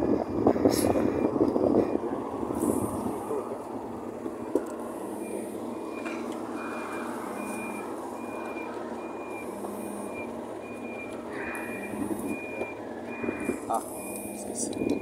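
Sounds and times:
vehicle noise: 0.0 - 15.0
high electronic warning beep: 4.4 - 15.0.

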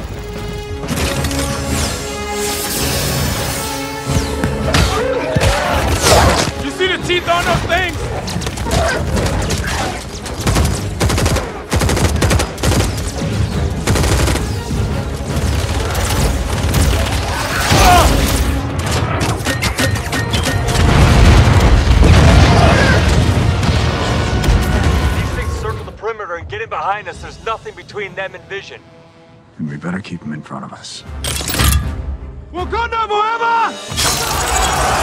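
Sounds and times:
orchestral score: 0.0 - 26.4, 27.0 - 35.0
rapid gunfire volleys: 7.6 - 25.2.

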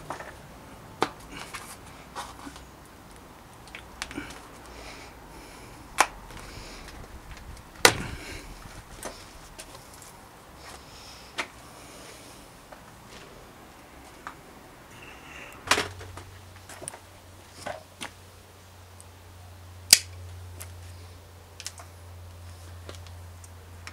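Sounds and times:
tyre bead snapping: 19.9 - 20.2.

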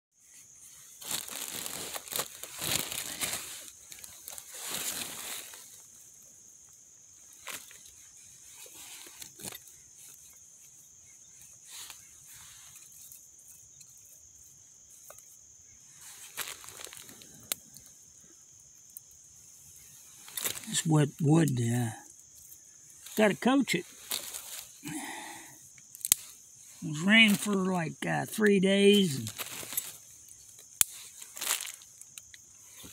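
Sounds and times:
steady high hiss: 0.2 - 32.9
plastic bag crinkling: 1.0 - 5.2, 16.3 - 17.4, 29.2 - 30.0, 31.2 - 31.8.

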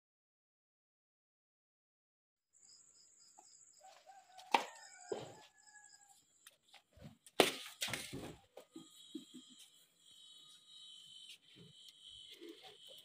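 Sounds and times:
rooster crowing: 3.8 - 6.2.

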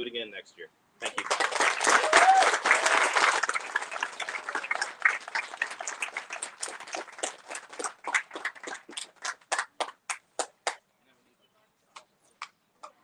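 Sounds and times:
audience applauding: 1.0 - 10.8.

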